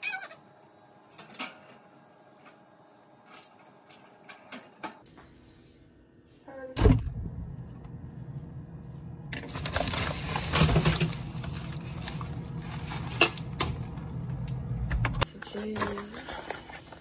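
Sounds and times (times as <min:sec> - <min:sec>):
food packages bumping: 0:09.4 - 0:14.4
plastic crinkling: 0:09.4 - 0:14.5.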